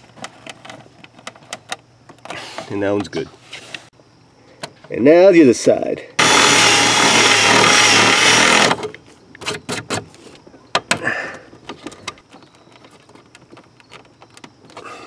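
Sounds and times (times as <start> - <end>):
electric drill drilling: 6.2 - 8.9.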